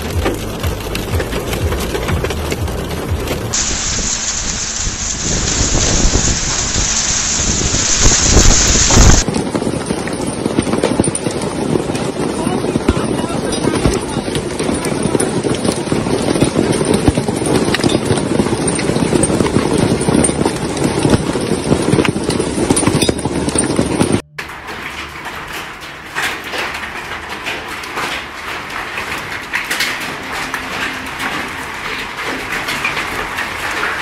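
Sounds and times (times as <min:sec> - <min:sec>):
hail pelting down: 0:00.0 - 0:34.0
hailstones striking paving and plants: 0:00.0 - 0:34.0.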